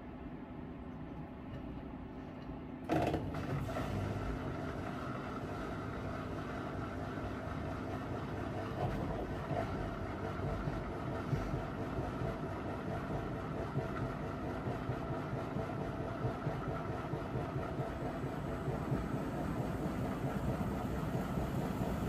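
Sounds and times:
washing machine rumbling: 2.7s - 22.0s.

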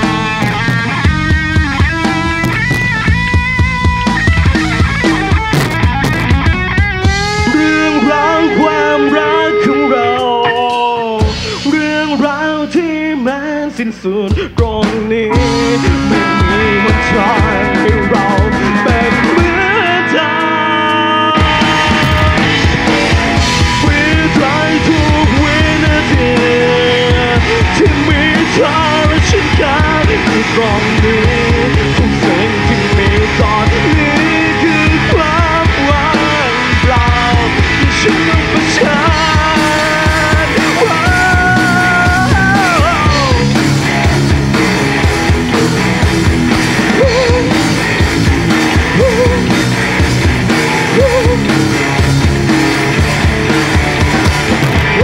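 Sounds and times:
drums: 0.0s - 55.0s
electric guitars: 0.0s - 55.0s
man singing: 7.1s - 44.2s, 46.6s - 47.9s, 48.7s - 49.7s, 50.6s - 51.7s.

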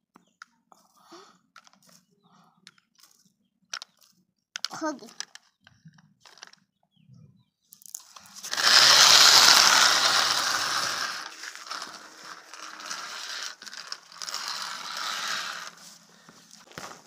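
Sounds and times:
plastic toy wheels rattling on concrete: 1.5s - 6.7s, 7.7s - 17.0s.

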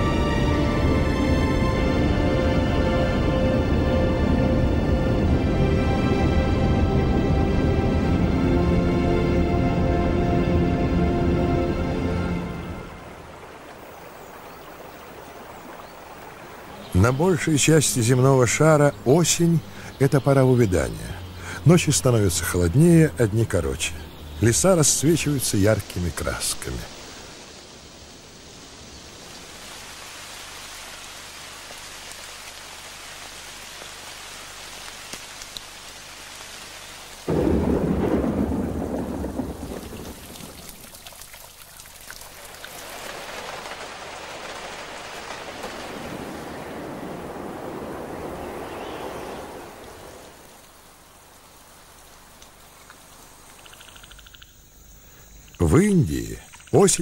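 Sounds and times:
rain falling: 0.0s - 57.0s
thunder clap rumbling: 37.3s - 41.0s.

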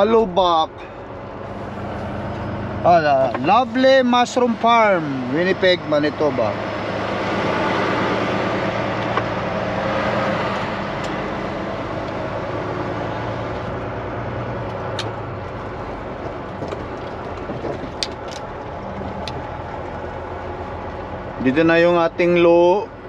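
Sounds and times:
road noise: 0.0s - 23.0s
truck diesel engine running: 0.0s - 23.0s
sharp clicks and rattles: 14.6s - 21.0s.

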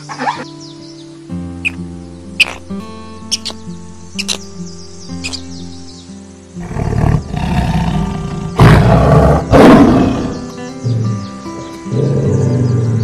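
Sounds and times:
background music: 0.0s - 13.0s
large animal roaring: 6.6s - 10.5s, 11.9s - 13.0s.

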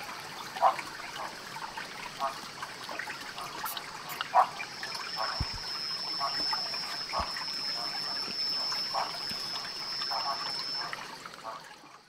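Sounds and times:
insect high-pitched trill: 3.6s - 11.1s
short pulsed calls: 3.6s - 11.6s.

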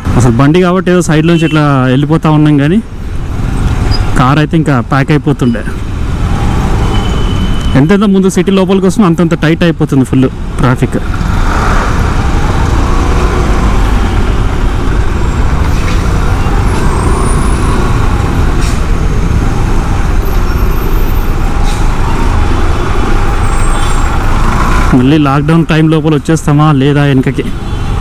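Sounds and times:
city traffic din: 0.0s - 28.0s.

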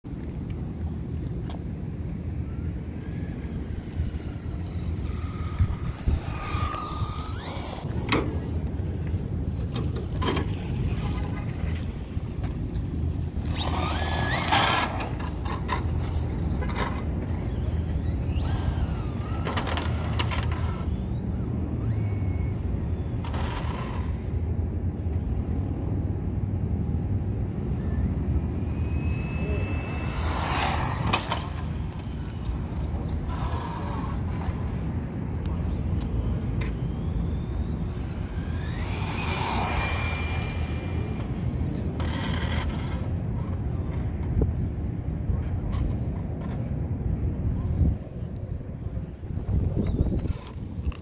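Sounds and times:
steady low rumble: 0.1s - 19.2s
rc car electric motor whining: 2.8s - 24.4s, 27.7s - 43.7s.

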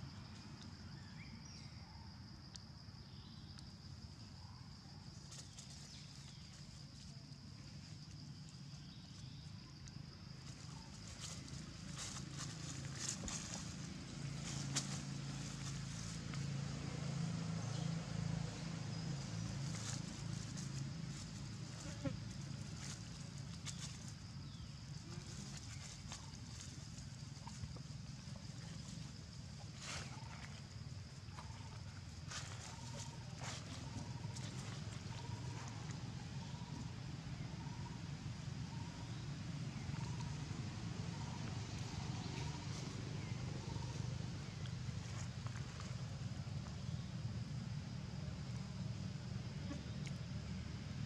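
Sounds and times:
low outdoor rumble: 3.7s - 51.0s
animals moving over dry leaves: 5.1s - 36.8s.

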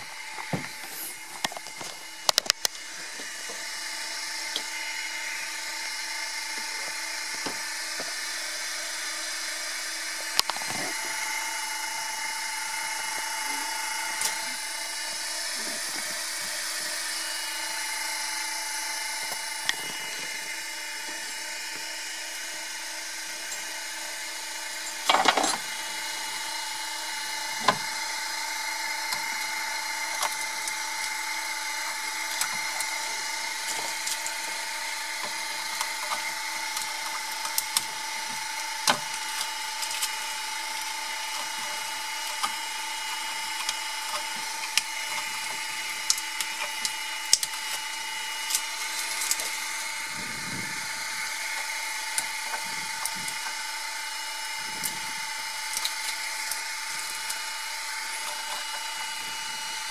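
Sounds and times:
printer fans whining: 0.0s - 59.9s
sharp clicks and cracks: 1.3s - 2.8s, 10.3s - 10.9s, 29.0s - 49.7s, 54.6s - 59.3s.

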